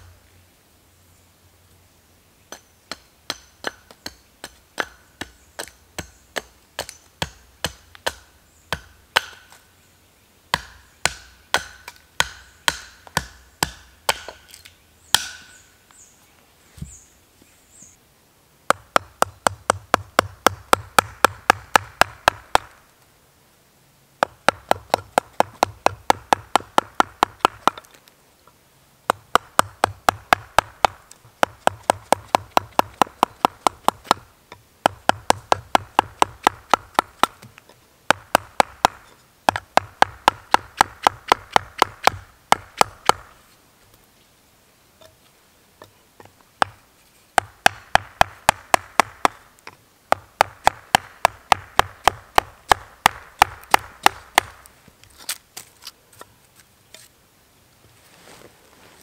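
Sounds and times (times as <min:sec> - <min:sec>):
axe chopping wood: 0:02.5 - 0:09.6, 0:10.5 - 0:15.6, 0:18.7 - 0:22.8, 0:24.2 - 0:27.9, 0:29.1 - 0:43.4, 0:46.6 - 0:46.8, 0:47.4 - 0:54.7.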